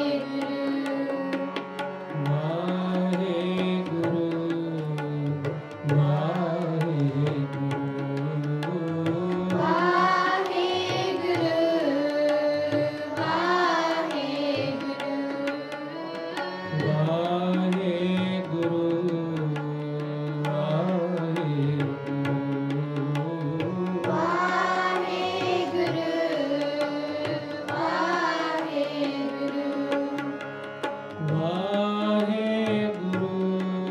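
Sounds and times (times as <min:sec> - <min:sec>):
harmonium drone and melody: 0:00.0 - 0:33.9
tabla beat: 0:00.0 - 0:33.9
voices singing gliding phrases: 0:09.2 - 0:17.1, 0:23.6 - 0:30.4.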